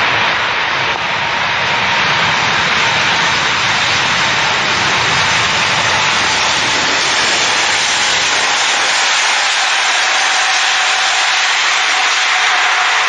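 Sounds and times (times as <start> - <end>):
jet engines running: 0.0 - 13.0.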